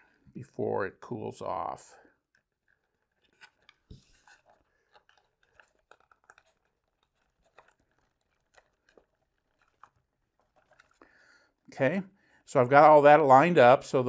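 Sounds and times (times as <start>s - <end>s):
hands rubbing foam wing: 2.7s - 11.1s.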